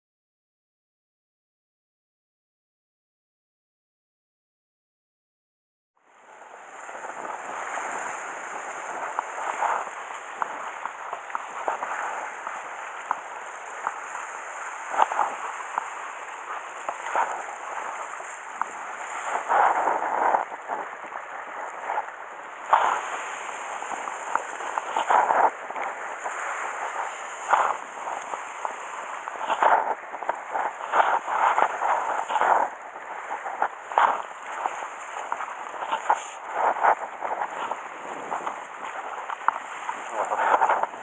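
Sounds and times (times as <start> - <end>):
surf washing against rocks: 6.0 - 41.0
sharp crackles and taps: 8.6 - 41.0.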